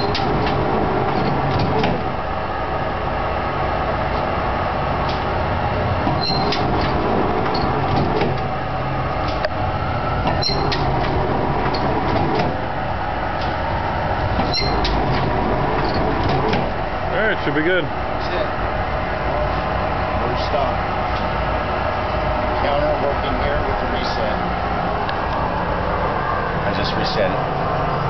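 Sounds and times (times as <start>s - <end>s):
mechanism clicks and clanks: 0.0s - 2.2s, 5.0s - 5.3s, 6.0s - 8.5s, 10.2s - 12.7s, 14.2s - 16.8s
machine drive hum: 0.0s - 28.0s.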